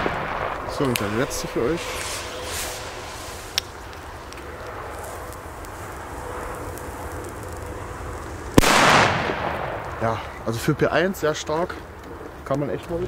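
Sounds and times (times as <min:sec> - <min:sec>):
firecracker bang echoing: 0:00.0 - 0:03.9, 0:08.6 - 0:10.7
wind: 0:00.0 - 0:13.0.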